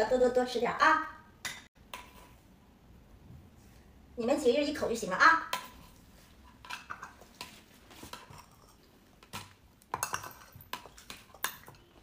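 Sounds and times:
spoon tapping food bowls: 9.2s - 12.0s.

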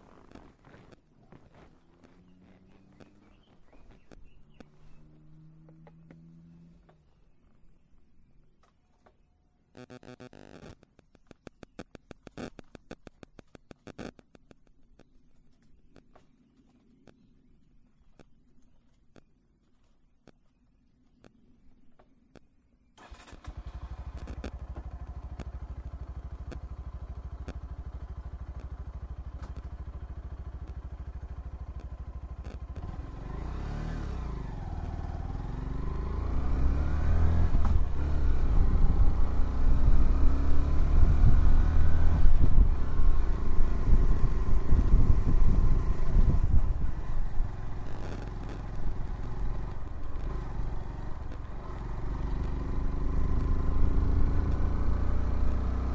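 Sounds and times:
motorcycle engine revving: 0.0s - 6.9s, 23.0s - 55.9s.

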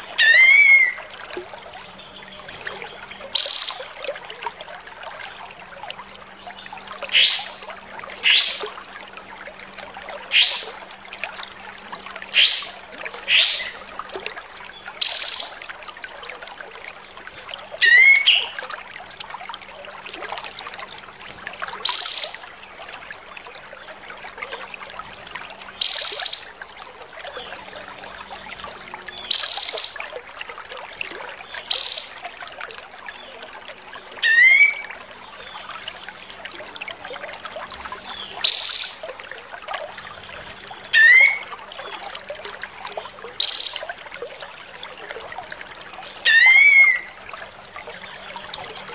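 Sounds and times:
trickle of water: 0.0s - 48.9s.

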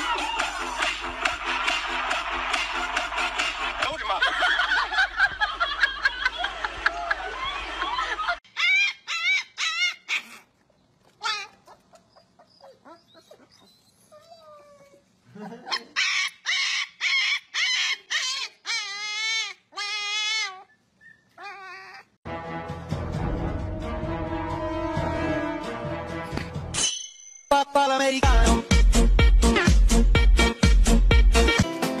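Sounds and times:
puppy yelping and howling: 8.5s - 10.4s, 11.2s - 22.2s.

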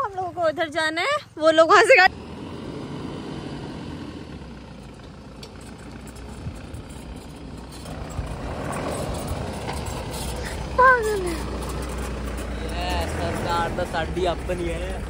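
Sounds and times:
diesel engine running: 0.0s - 15.0s
stones clicking under tyres: 4.7s - 15.0s.

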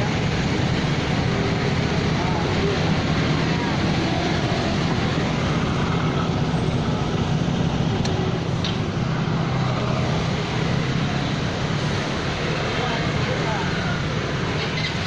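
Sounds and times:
passing road traffic: 0.0s - 15.0s
vehicle engine drone: 0.0s - 15.0s.

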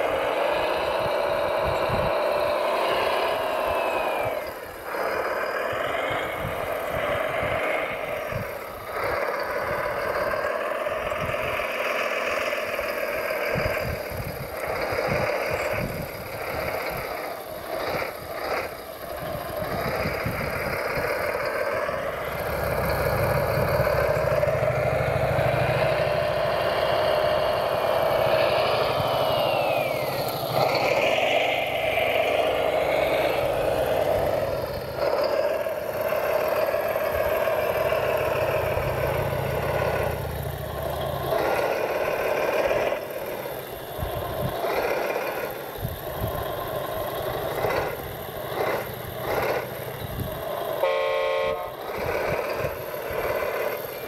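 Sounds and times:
gliding whine: 0.0s - 54.0s
toy wheel loader motor hum: 0.0s - 54.0s
deep rumble: 19.0s - 42.9s.

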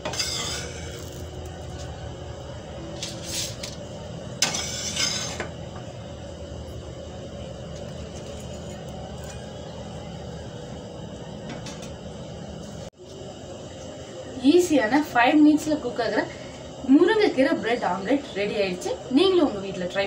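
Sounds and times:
low background hum: 0.0s - 20.0s.

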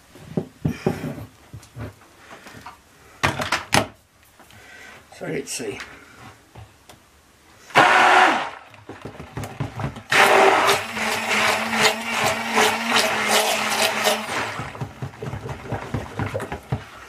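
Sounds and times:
stick blender motor hum: 10.1s - 14.8s.

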